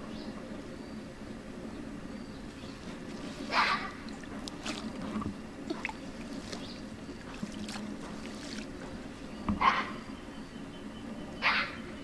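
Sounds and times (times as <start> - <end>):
shallow water splashing and trickling: 3.0 - 9.0.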